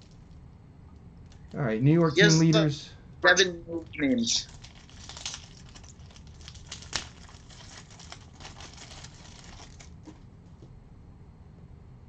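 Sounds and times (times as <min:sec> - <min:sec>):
cellophane wrapper crinkling: 0:04.4 - 0:10.3.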